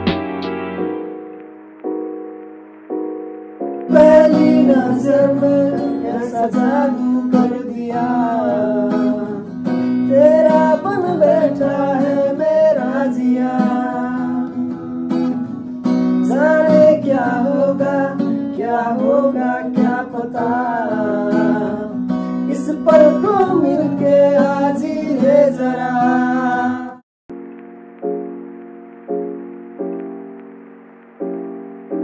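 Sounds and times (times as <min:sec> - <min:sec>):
acoustic guitar strumming chords: 0:00.0 - 0:32.0
voices singing: 0:03.9 - 0:09.5, 0:10.1 - 0:14.8, 0:16.3 - 0:27.0.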